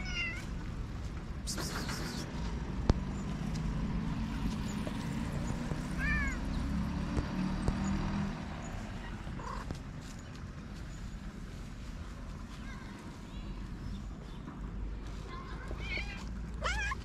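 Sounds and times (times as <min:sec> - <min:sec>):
cat meowing: 0:00.0 - 0:00.5, 0:06.0 - 0:06.4, 0:16.6 - 0:17.0.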